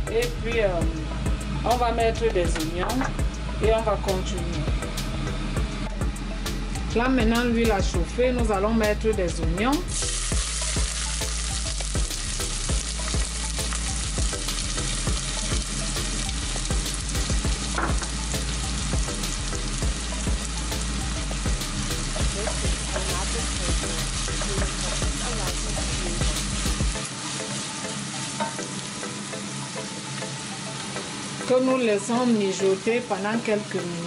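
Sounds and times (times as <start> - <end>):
onions sizzling in oil: 9.9 - 34.0.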